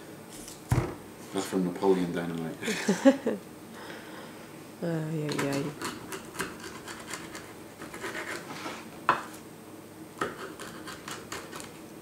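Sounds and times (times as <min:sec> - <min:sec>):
knife sawing through rind: 0:05.6 - 0:08.5, 0:10.2 - 0:11.7.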